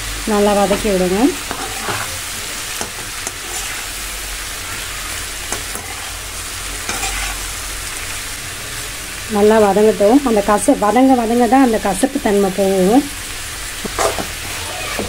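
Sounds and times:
vegetables sizzling in hot oil: 0:00.0 - 0:15.0
metal ladle scraping pan: 0:01.4 - 0:02.2, 0:02.8 - 0:03.9, 0:05.5 - 0:06.2, 0:06.8 - 0:07.4, 0:13.8 - 0:15.0.

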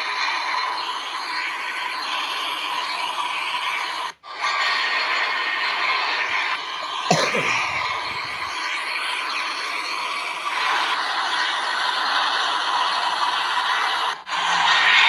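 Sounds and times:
thin high whine: 0:06.2 - 0:09.9.

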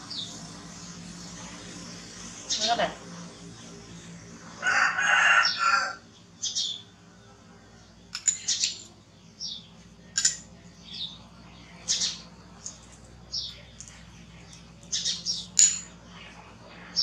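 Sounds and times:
rooster crowing: 0:04.5 - 0:06.1.

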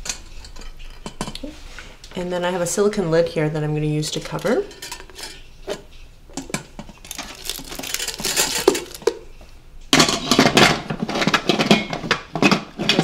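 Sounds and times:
lid scraping and rattling on pot rim: 0:04.3 - 0:09.2, 0:10.0 - 0:13.0.

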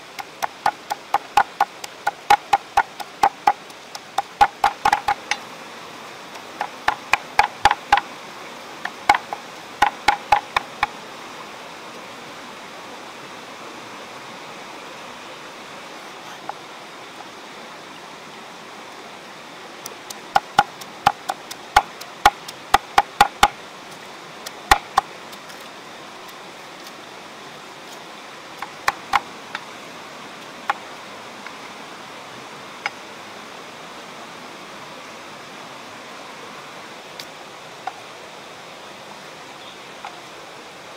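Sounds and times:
steady background hiss: 0:00.0 - 0:40.9
cleaver chopping on wooden block: 0:00.2 - 0:05.4, 0:06.6 - 0:08.1, 0:09.1 - 0:10.9, 0:20.1 - 0:23.6, 0:24.7 - 0:25.1, 0:28.6 - 0:29.2.

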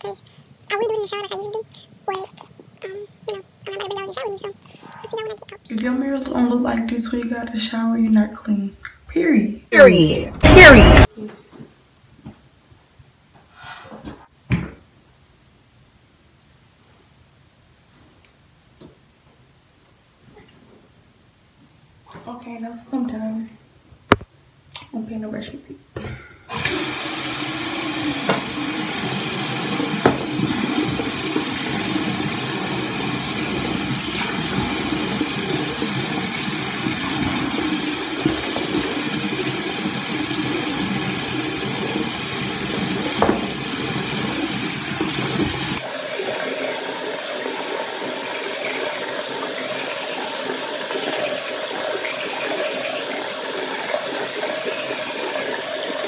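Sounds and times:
water running from tap: 0:26.5 - 0:56.0
light knocks at sink: 0:43.2 - 0:43.5.

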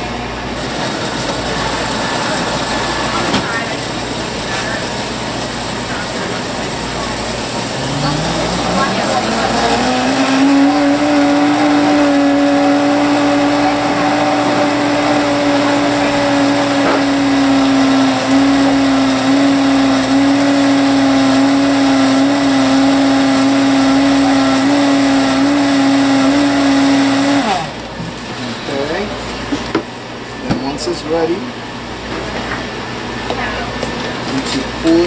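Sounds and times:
blender motor running: 0:00.6 - 0:27.9.

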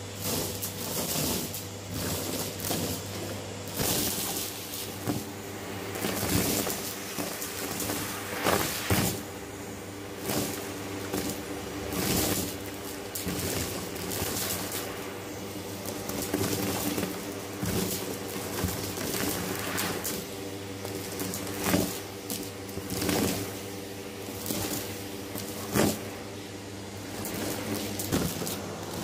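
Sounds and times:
vacuum cleaner motor hum: 0:00.0 - 0:29.0
debris sucked into vacuum tube: 0:03.7 - 0:22.0.

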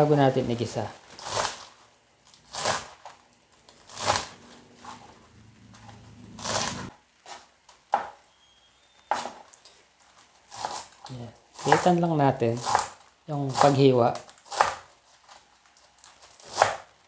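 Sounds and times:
knife slicing crunchy stalks: 0:01.1 - 0:03.1, 0:03.7 - 0:05.1, 0:06.3 - 0:07.5, 0:10.5 - 0:14.9, 0:16.1 - 0:16.9.

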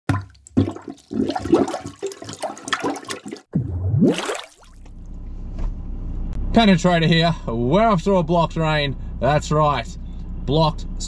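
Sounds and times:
water flushing and gushing: 0:00.1 - 0:04.9
low steady rumble: 0:04.9 - 0:11.0.

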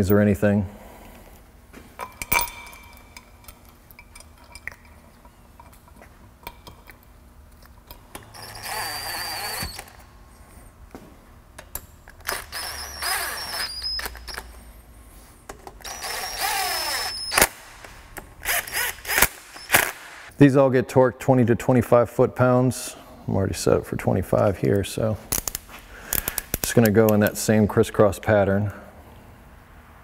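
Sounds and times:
cordless drill motor whining: 0:08.4 - 0:10.0, 0:12.3 - 0:14.4, 0:15.8 - 0:17.5.

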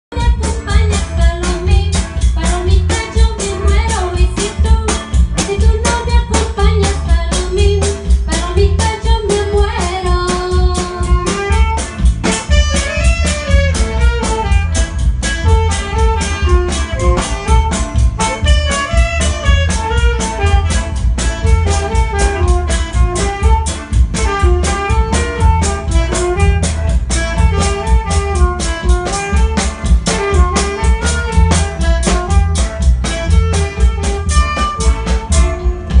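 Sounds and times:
electric guitar: 0:00.1 - 0:36.0
keyboard: 0:00.1 - 0:36.0
saxophone: 0:00.1 - 0:36.0
electronic drum beat: 0:00.2 - 0:36.0.

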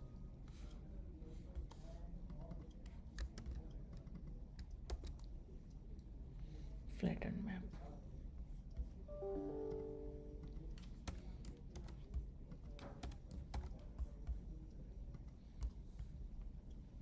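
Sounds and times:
electronic chime: 0:09.1 - 0:10.5.

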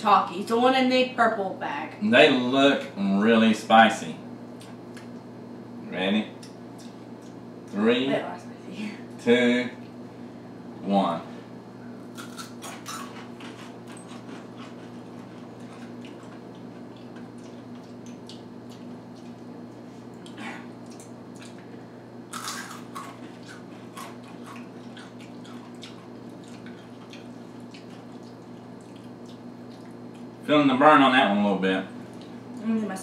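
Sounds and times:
steady low hum: 0:00.0 - 0:33.0
people crunching chips: 0:12.1 - 0:19.3, 0:22.3 - 0:29.2.

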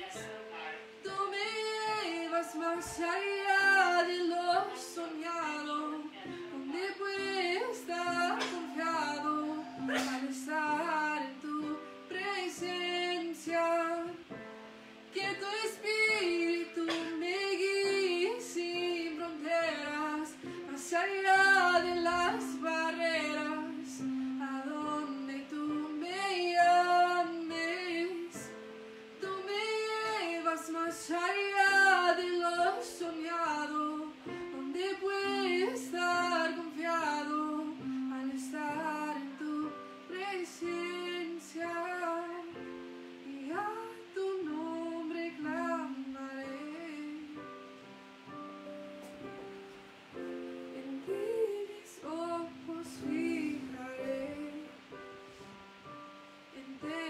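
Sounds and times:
woman singing: 0:00.0 - 0:47.8, 0:50.2 - 0:55.2, 0:55.8 - 0:57.0.

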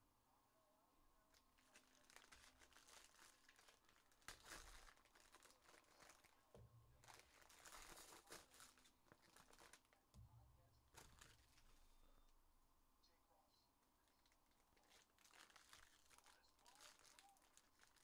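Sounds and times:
foil wrapper crinkling and tearing: 0:01.6 - 0:06.4, 0:07.0 - 0:10.0, 0:10.9 - 0:11.9, 0:14.2 - 0:18.0.

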